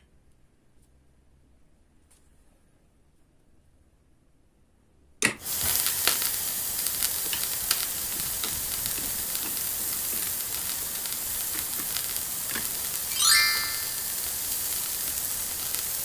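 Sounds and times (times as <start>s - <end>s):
food sizzling in hot oil: 5.4s - 16.0s.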